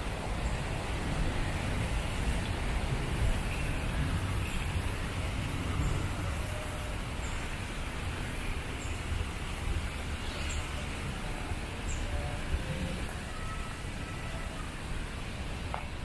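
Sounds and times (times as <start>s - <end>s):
even hiss: 0.0s - 16.0s.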